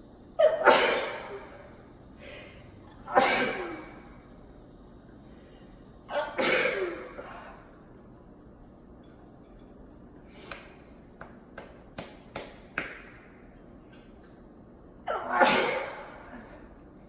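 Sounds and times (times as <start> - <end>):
woman sneezing: 0.4 - 1.6, 3.1 - 4.0, 6.1 - 7.5, 15.1 - 16.5.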